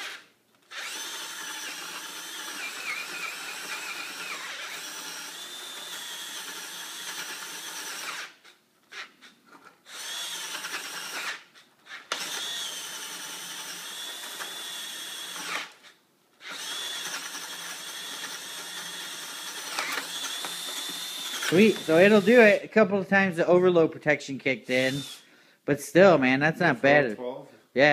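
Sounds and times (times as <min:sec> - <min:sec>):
cordless drill whining: 0:00.0 - 0:22.6, 0:24.7 - 0:25.4.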